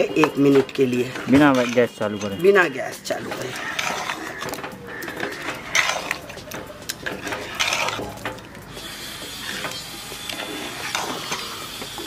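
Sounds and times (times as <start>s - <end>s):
metal ladle scraping a pot: 0.0s - 12.0s.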